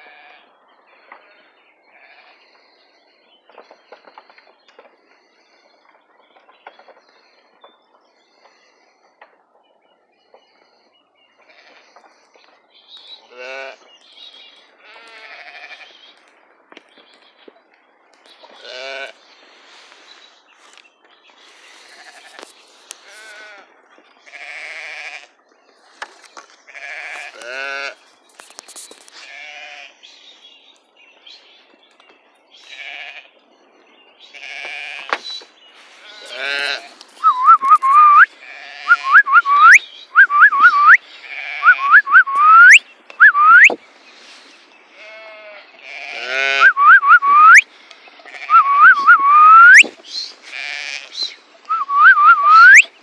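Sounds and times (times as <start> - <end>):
sheep and lambs bleating: 0.0 - 2.6, 11.4 - 12.0, 13.2 - 13.9, 14.8 - 16.1, 18.5 - 19.2, 21.7 - 25.4, 26.6 - 28.0, 29.2 - 30.0, 32.6 - 33.4, 34.2 - 35.2, 35.9 - 42.8, 44.9 - 47.6, 48.2 - 51.4
person whistling short rising notes: 37.2 - 38.3, 38.9 - 41.0, 41.6 - 43.8, 46.6 - 47.6, 48.5 - 49.9, 51.7 - 52.9.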